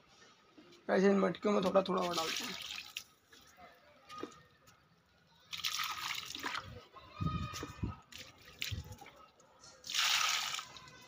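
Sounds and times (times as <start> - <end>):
water splashing onto soil: 1.6 - 3.1, 5.5 - 6.7, 8.1 - 9.1, 9.8 - 10.8.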